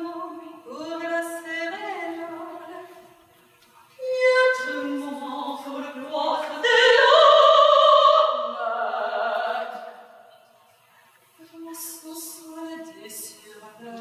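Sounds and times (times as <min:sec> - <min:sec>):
woman singing long held notes: 0:04.0 - 0:10.0.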